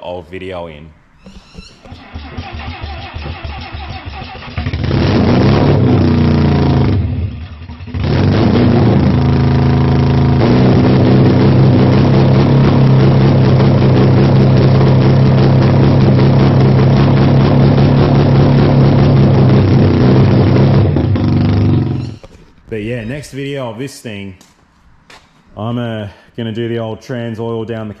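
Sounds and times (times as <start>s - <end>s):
rotary engine starting and idling: 2.0s - 22.3s.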